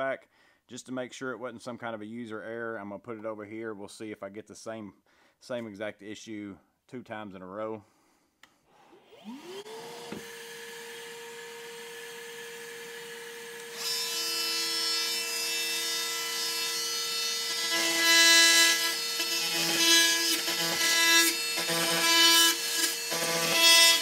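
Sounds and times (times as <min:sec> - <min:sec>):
vacuum motor whining: 0:09.0 - 0:14.4
oscillating multi-tool buzzing: 0:09.0 - 0:24.0.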